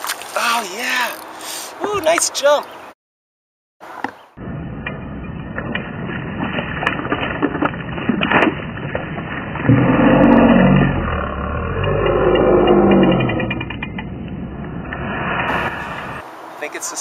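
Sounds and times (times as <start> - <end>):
sharp water smacks: 0.0 - 0.4
deep drawn-out drone: 4.3 - 16.3.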